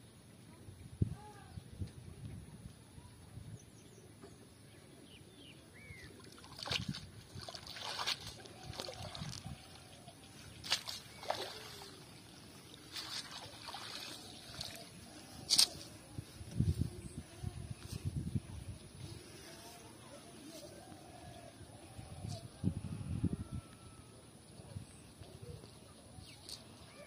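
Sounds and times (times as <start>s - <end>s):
net splashing in water: 6.2s - 9.8s, 10.5s - 14.9s.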